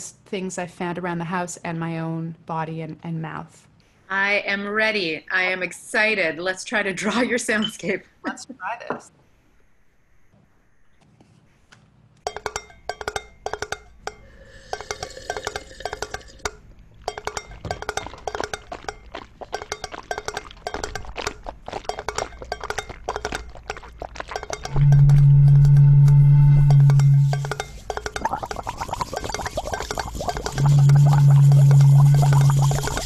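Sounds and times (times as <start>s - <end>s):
rhythmic clinks and taps: 12.2s - 25.8s, 26.8s - 33.0s
loud low steady drone: 24.7s - 27.6s.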